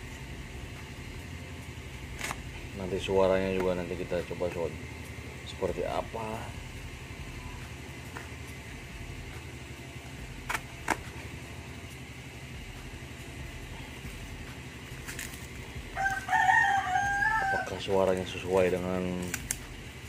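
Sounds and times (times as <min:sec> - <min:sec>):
steady low hum: 0:00.0 - 0:20.0
knife cutting tape and cardboard: 0:02.1 - 0:02.5, 0:10.4 - 0:11.2, 0:15.0 - 0:15.6, 0:18.1 - 0:19.8
rooster crowing: 0:15.9 - 0:18.0.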